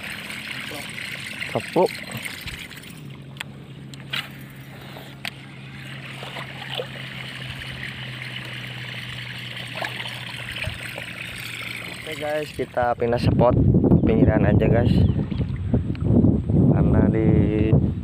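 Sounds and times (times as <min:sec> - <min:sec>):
lure splashing and gurgling: 0:00.0 - 0:12.9
fishing reel whirring: 0:04.0 - 0:12.6.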